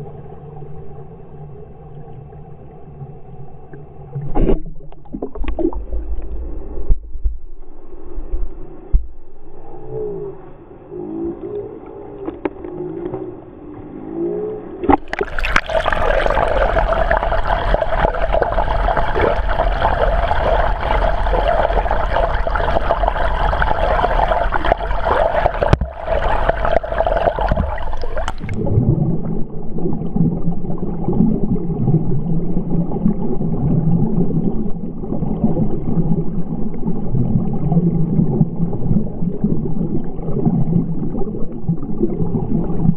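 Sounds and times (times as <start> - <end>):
water splashing from swimming: 14.8 - 32.0.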